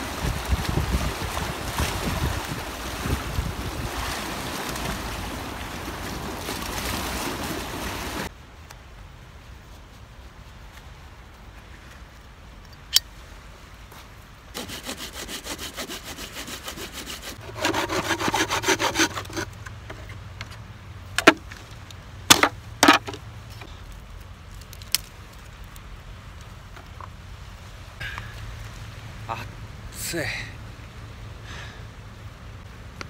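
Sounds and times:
hand saw cutting wood: 14.6 - 19.6.

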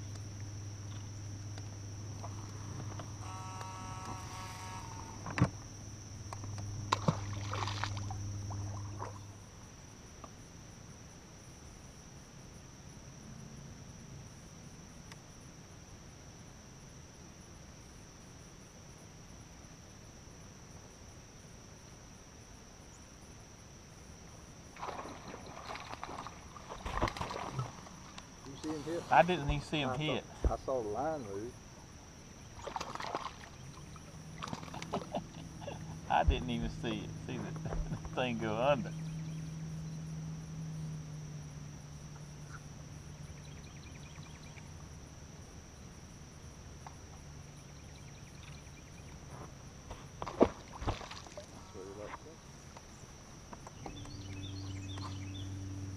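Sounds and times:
low hum: 0.0 - 11.0, 24.8 - 55.9
high insect trill: 0.0 - 55.9
low thump: 36.2 - 36.8.

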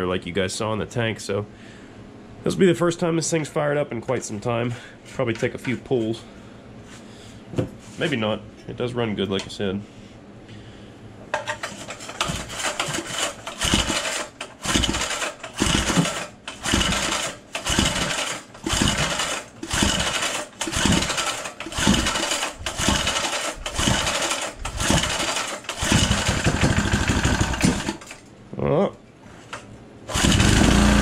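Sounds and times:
small engine cranking by pull-cord: 12.2 - 28.2, 30.1 - 31.0.

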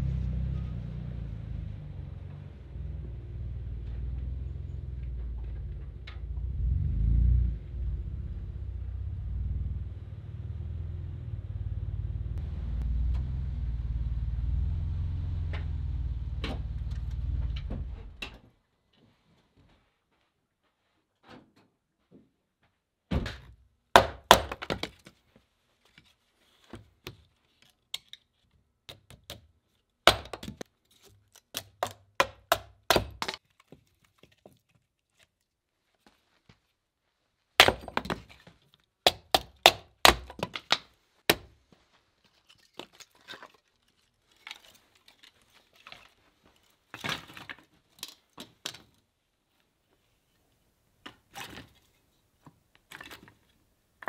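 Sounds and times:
sharp knocks and cracks: 23.1 - 25.2, 26.7 - 35.3, 37.6 - 41.6.

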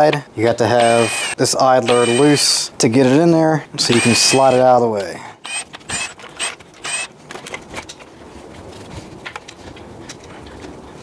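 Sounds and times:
cordless ratchet whirring: 0.8 - 2.5, 3.8 - 4.7, 5.4 - 7.1.

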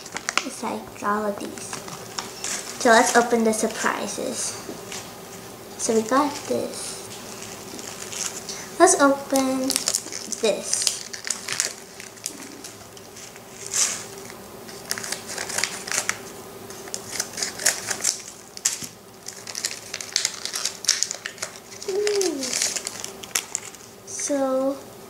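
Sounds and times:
plastic packaging crinkling: 0.0 - 3.9, 6.0 - 23.9
scissors snipping paper: 14.7 - 18.9, 20.3 - 23.7.

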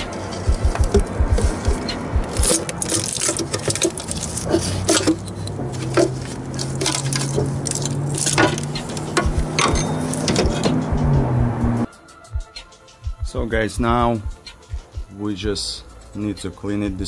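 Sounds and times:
steady low hum: 0.0 - 2.6, 8.7 - 11.9
metal knocks and scrapes: 0.0 - 11.3.

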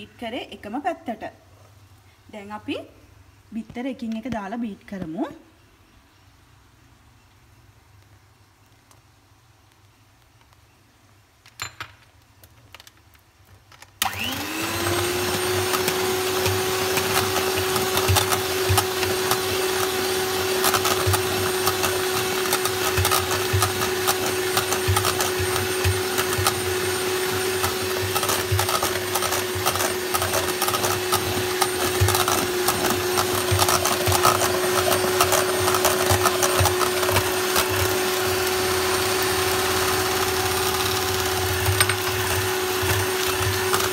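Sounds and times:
electric hand mixer whining: 14.0 - 43.9.

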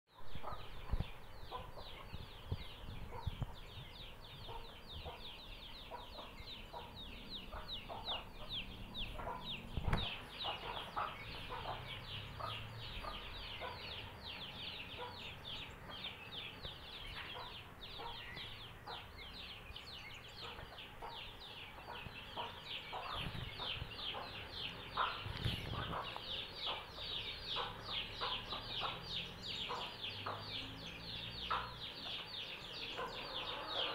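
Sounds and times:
chicks peeping: 0.3 - 33.9
hen clucking: 4.5 - 15.3, 20.4 - 30.7, 31.4 - 33.9.

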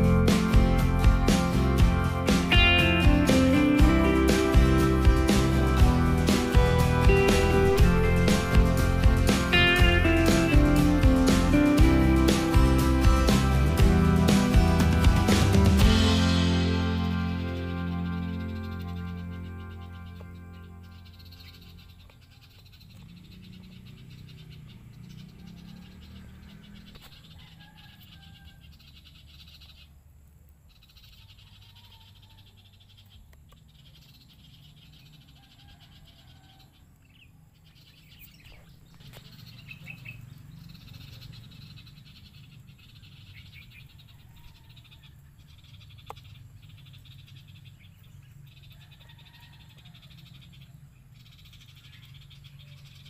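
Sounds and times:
low hum: 0.0 - 22.2
frogs calling with high trill: 18.2 - 53.0.

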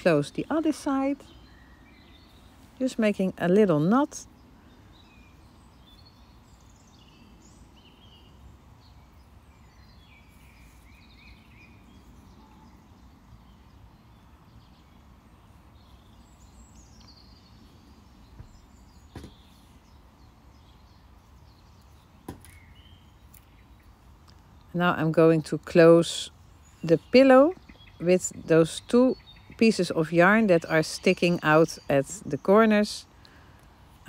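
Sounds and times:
faint bird chirps: 4.2 - 24.6.

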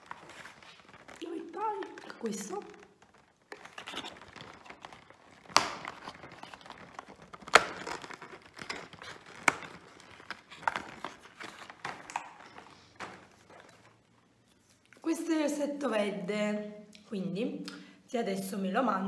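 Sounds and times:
sharp cardboard cracks: 0.0 - 14.1
cardboard crinkling and tearing: 0.0 - 14.8.

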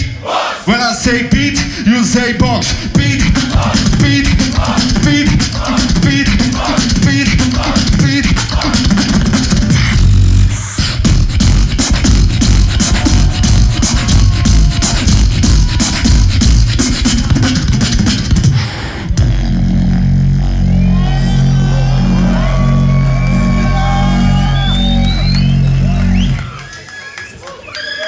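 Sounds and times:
person beatboxing: 0.0 - 20.8
deep bass sound: 2.4 - 26.5.

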